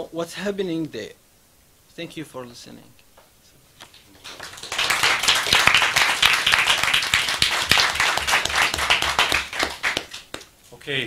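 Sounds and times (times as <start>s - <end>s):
audience applauding: 3.9s - 10.5s.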